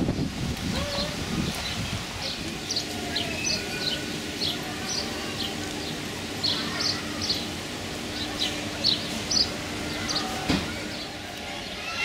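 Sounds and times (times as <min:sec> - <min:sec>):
small birds chirping: 0:00.1 - 0:12.0
steady low hum: 0:02.0 - 0:11.8.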